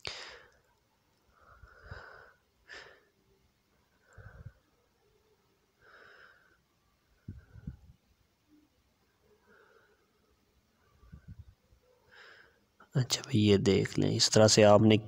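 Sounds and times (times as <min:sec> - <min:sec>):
person breathing softly: 0:00.0 - 0:00.7, 0:01.3 - 0:03.2, 0:03.9 - 0:08.6, 0:09.2 - 0:12.8.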